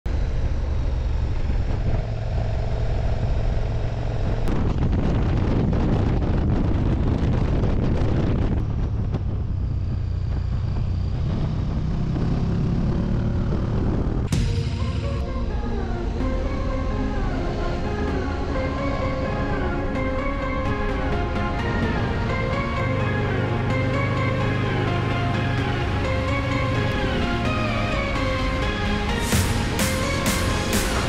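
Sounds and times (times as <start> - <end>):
motorcycle engine running: 0.1 - 19.3, 21.0 - 31.0
wind rushing over microphone: 1.2 - 14.4.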